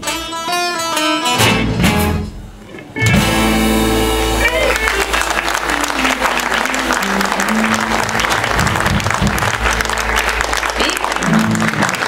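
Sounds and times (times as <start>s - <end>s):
plucked bass and guitar notes: 0.0s - 12.0s
audience applauding: 3.8s - 12.0s.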